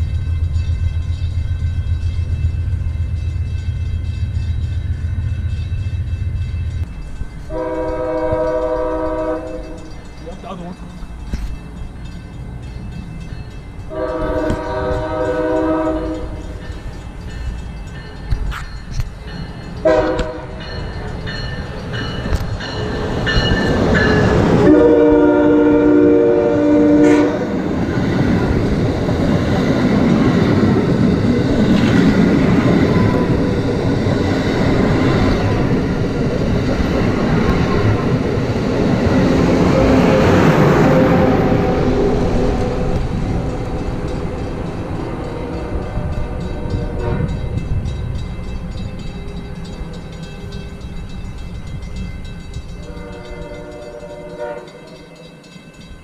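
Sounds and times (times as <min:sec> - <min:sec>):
train wheels rushing on rail: 0:00.0 - 0:56.0
train horn: 0:07.5 - 0:09.9, 0:13.9 - 0:16.6, 0:19.8 - 0:20.8, 0:24.5 - 0:27.7, 0:39.6 - 0:47.7, 0:52.8 - 0:55.3.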